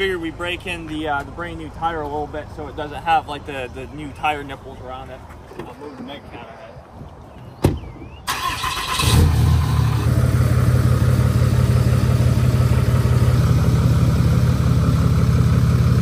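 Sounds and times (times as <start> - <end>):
diesel engine starting and idling: 8.3 - 16.0.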